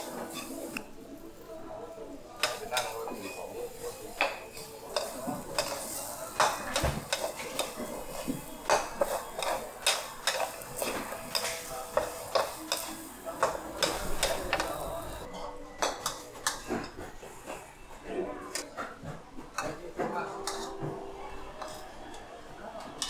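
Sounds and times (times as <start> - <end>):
food sizzling: 0.0 - 1.6, 2.4 - 15.3
metal spatula scraping a wok: 0.1 - 0.8.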